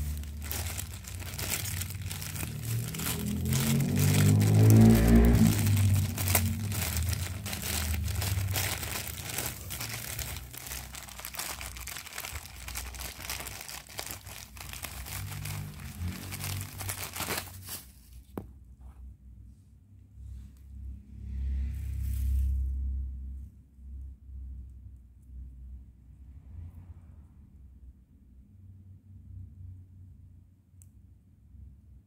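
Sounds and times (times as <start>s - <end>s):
plastic bag crinkling: 0.0s - 18.2s.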